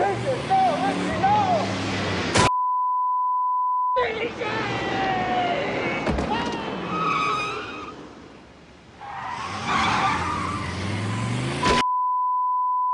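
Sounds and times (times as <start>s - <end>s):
steady electronic beep: 2.5s - 4.0s
car tires squealing: 4.4s - 8.2s, 9.0s - 11.8s
car engine revving: 9.2s - 11.8s.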